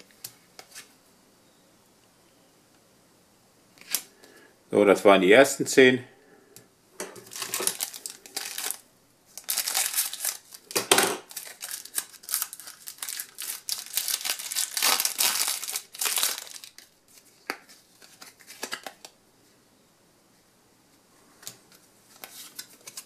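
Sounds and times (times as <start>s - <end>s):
foil wrapper tearing and crinkling: 7.2s - 17.3s.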